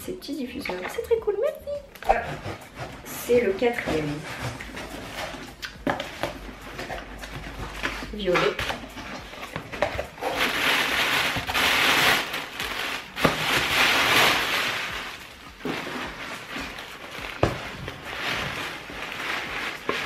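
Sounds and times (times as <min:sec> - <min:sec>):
tissue paper rustling: 0:01.4 - 0:20.0.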